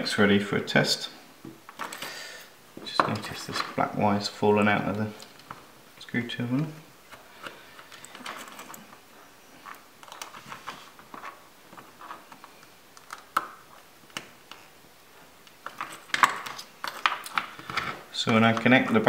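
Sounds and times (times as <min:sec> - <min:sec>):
hands handling wires: 0:01.4 - 0:02.2, 0:02.8 - 0:03.9, 0:04.8 - 0:05.7, 0:07.0 - 0:14.7, 0:15.4 - 0:19.0.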